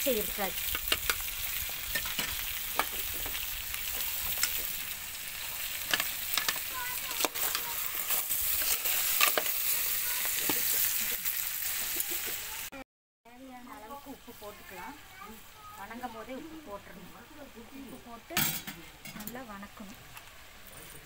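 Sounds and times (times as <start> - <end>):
food sizzling in oil: 0.0 - 21.0
metal spoon scraping a pan: 1.9 - 4.8, 5.4 - 11.4.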